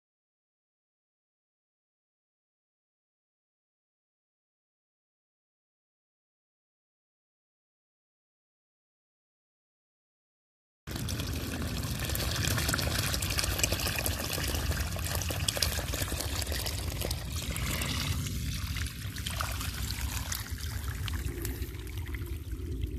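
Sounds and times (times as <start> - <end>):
water splashing into puddle: 10.9 - 22.8
water gushing from hose: 10.9 - 22.9.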